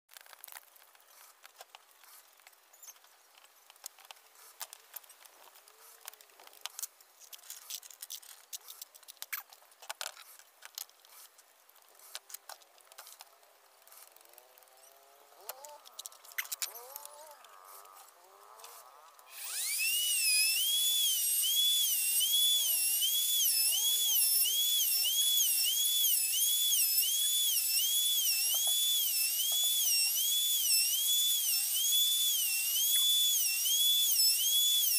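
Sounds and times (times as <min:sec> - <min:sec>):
electric router motor whine: 0:14.5 - 0:34.9.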